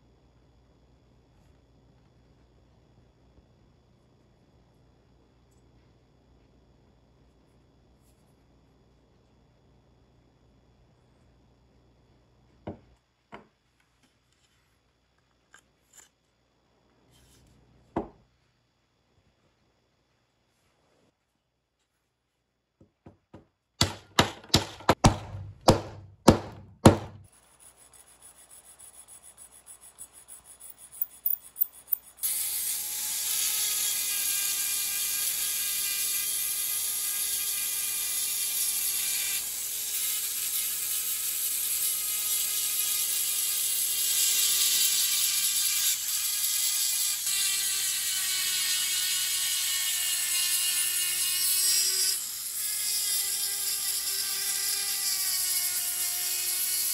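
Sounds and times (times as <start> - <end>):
rotary tool sanding whine: 27.3 - 38.0.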